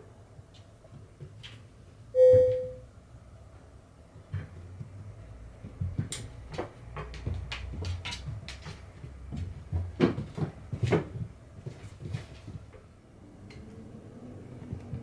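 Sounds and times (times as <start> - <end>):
cat paws and ball tapping floor: 4.3 - 12.8.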